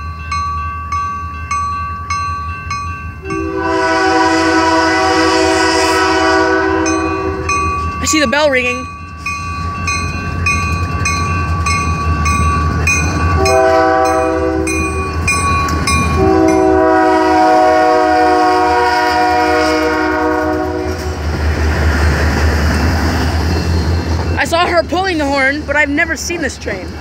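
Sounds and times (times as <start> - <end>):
locomotive bell ringing: 0.0 - 4.7, 6.2 - 18.7, 22.1 - 27.0
rumble of passing train: 0.0 - 27.0
train air horn: 3.2 - 7.7, 13.4 - 14.8, 16.2 - 21.1.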